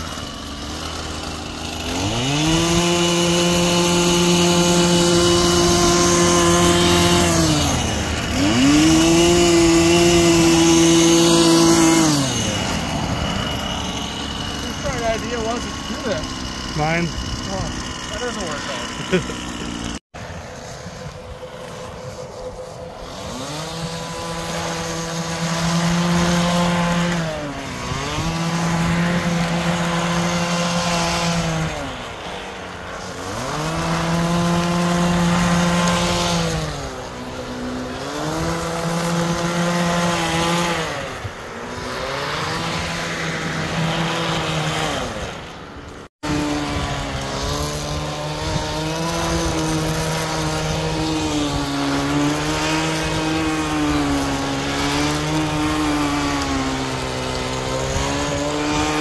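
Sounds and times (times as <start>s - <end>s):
two-stroke trimmer engine revving: 0.0s - 59.0s
brush throwing gravel gritty hiss: 18.1s - 59.0s.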